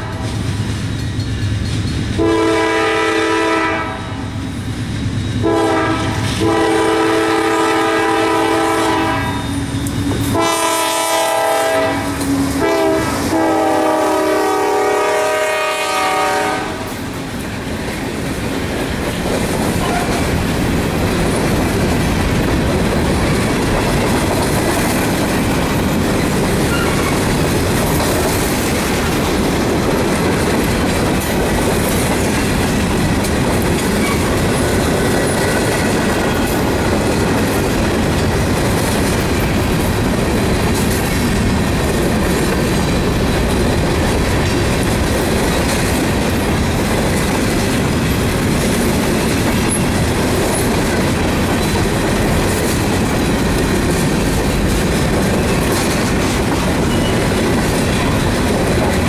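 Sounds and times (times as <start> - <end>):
locomotive air horn: 0.0 - 0.4, 2.2 - 4.3, 5.4 - 17.0
train wheels clattering over rail joints: 0.0 - 3.0, 16.0 - 59.0.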